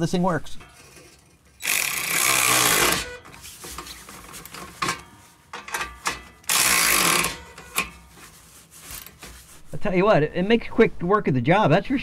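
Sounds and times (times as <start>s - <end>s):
cordless ratchet running: 1.6s - 3.1s, 6.5s - 7.4s.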